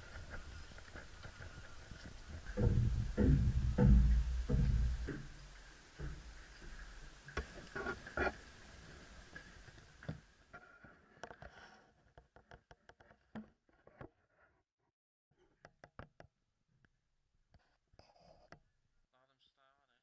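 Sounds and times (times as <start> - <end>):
light knocks and clicks: 0.2 - 7.9.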